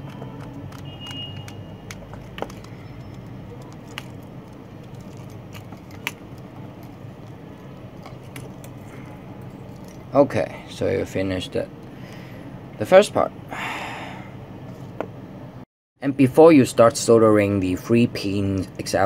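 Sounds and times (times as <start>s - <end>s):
connector parts clicking: 0.0s - 8.8s.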